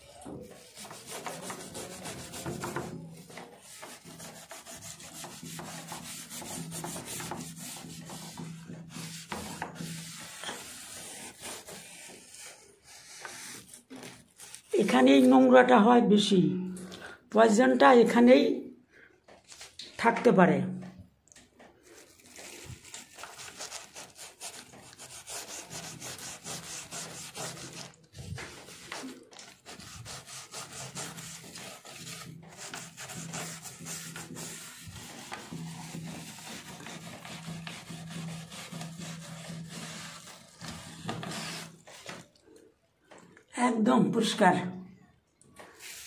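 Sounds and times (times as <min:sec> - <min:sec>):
hand scrubbing rubber seal: 0:22.4 - 0:42.2.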